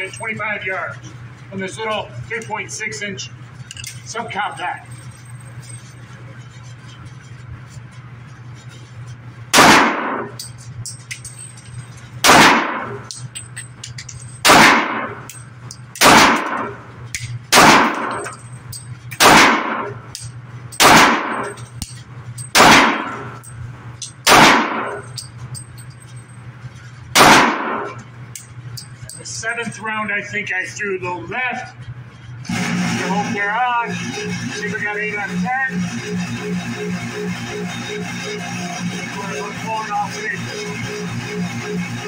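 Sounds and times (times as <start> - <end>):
pistol shots reverberating indoors: 9.5 - 10.3, 12.2 - 13.0, 14.4 - 15.3, 16.0 - 16.8, 17.5 - 18.3, 19.2 - 21.6, 22.5 - 23.3, 24.2 - 25.1, 27.2 - 28.0.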